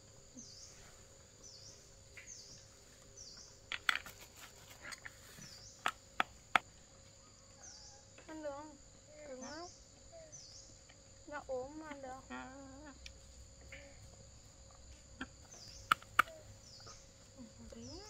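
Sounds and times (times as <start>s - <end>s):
sharp knocks and clicks: 3.4s - 4.2s.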